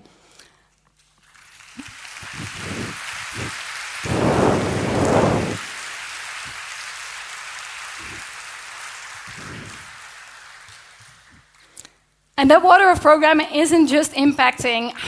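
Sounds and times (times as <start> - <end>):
large audience applauding: 1.2 - 11.8.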